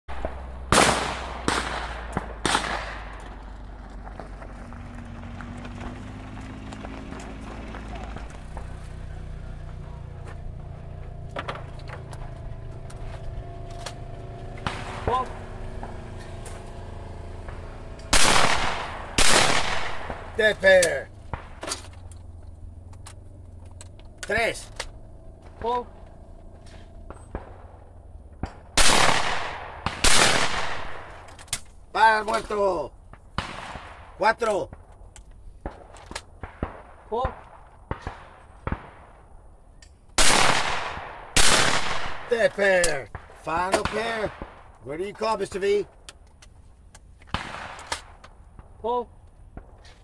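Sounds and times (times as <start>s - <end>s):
shotgun shots with echo: 0.1s - 3.2s, 14.6s - 16.1s, 17.4s - 21.6s, 27.0s - 31.3s, 33.3s - 34.8s, 35.6s - 39.3s, 40.2s - 44.7s, 47.3s - 48.2s
vehicle engine humming: 0.1s - 50.0s.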